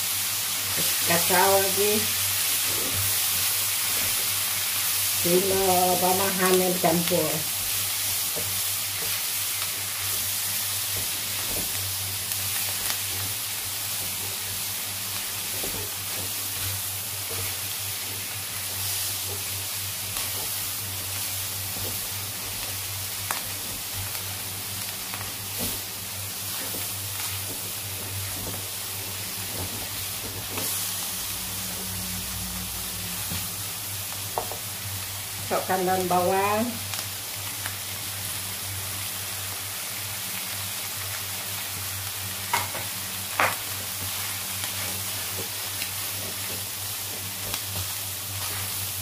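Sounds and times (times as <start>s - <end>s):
food sizzling in a wok: 0.0s - 49.0s.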